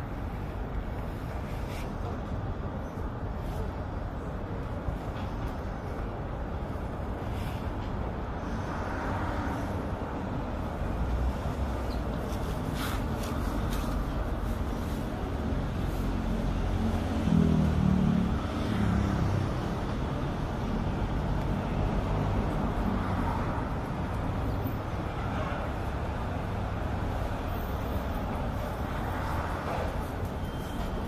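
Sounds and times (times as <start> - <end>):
steady traffic hum: 0.0 - 31.0
cars driving past: 6.7 - 31.0.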